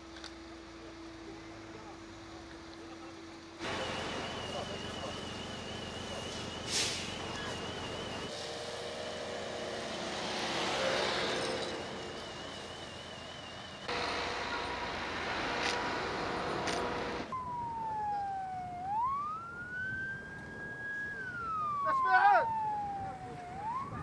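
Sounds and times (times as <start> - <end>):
rushing outdoor noise: 0.0 - 24.0
emergency siren wail: 3.6 - 14.8, 17.2 - 24.0.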